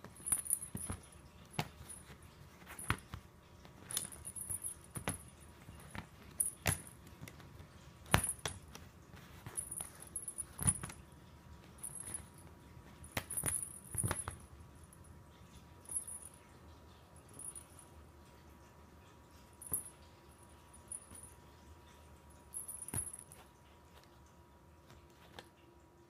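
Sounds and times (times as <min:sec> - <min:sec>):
light high jingling: 0:07.7 - 0:24.4.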